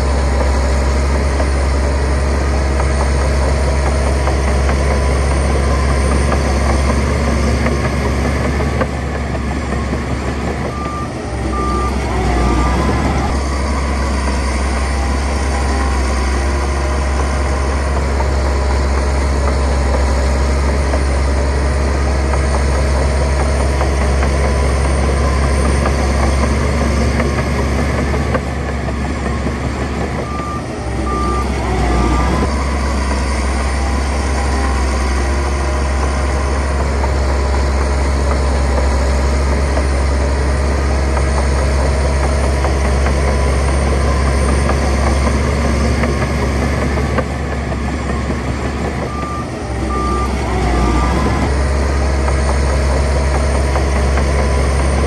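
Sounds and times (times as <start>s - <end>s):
heavy diesel machinery rumbling: 0.0s - 55.0s
reversing alarm beeps: 9.6s - 21.5s, 22.7s - 40.2s, 42.9s - 51.8s.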